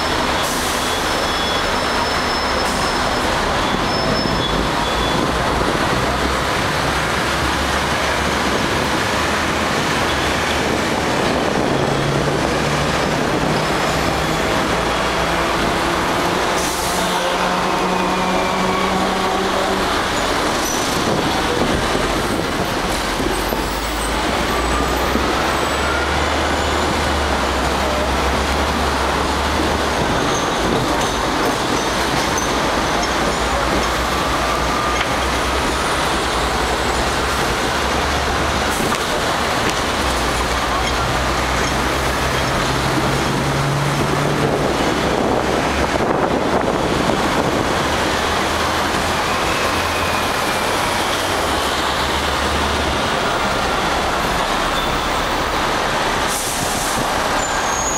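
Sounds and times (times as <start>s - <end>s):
city traffic: 0.0s - 57.9s
tram rumbling and rattling on rails: 0.0s - 57.9s.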